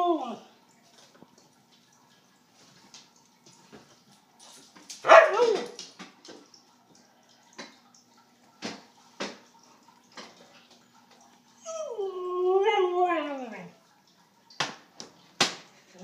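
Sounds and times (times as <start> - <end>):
faint steady hum: 0.0 - 16.0
dog howling: 11.6 - 13.8.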